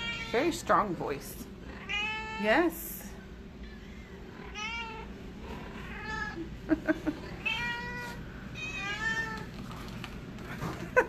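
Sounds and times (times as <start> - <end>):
cat meowing: 0.0 - 0.4, 7.4 - 9.5.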